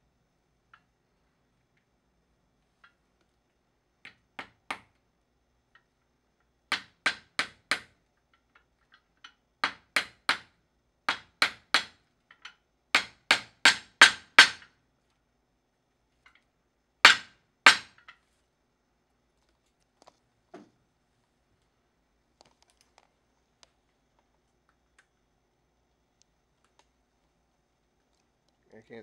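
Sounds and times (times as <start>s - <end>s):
small hammer tapping: 6.7s - 10.5s, 11.1s - 14.7s.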